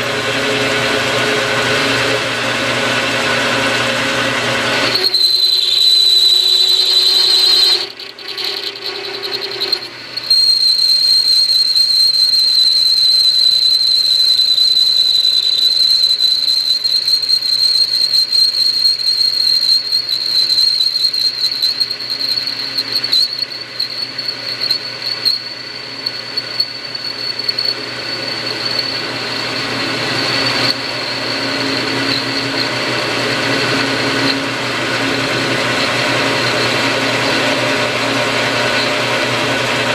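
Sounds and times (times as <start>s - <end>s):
lathe motor hum: 0.0s - 11.8s, 21.4s - 39.9s
lathe cutting whistle: 0.0s - 39.9s.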